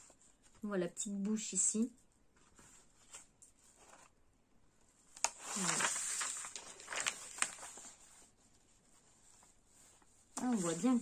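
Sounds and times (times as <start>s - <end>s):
plastic film and paper crackling: 5.1s - 8.3s.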